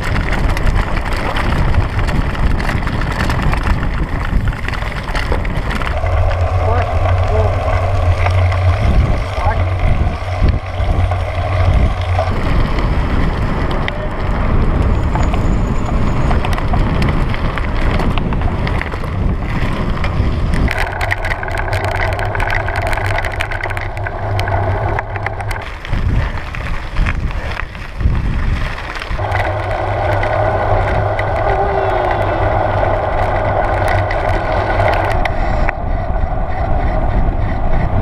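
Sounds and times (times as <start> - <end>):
tyres crunching on gravel: 0.0 - 35.7
bicycle rattling: 0.0 - 38.0
wind buffeting microphone: 0.0 - 38.0.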